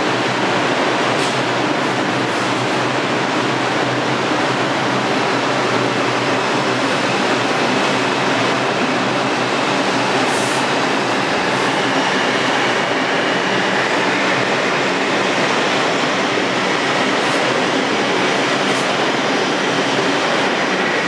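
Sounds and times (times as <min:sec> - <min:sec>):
subway train wheels on rail: 0:00.0 - 0:21.0.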